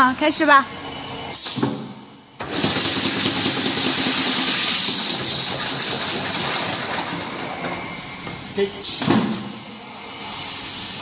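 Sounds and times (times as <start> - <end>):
welding machine hissing: 2.4 - 6.8.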